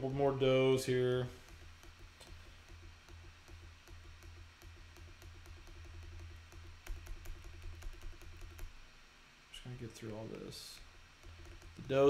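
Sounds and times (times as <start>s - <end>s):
faint pulsing low hum: 0.0s - 12.0s
computer mouse clicks: 1.4s - 8.8s, 11.2s - 12.0s.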